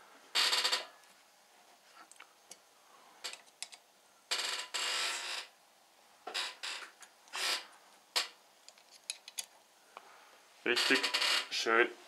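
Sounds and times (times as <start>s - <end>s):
hex key clicking and scraping screw: 8.7s - 9.5s.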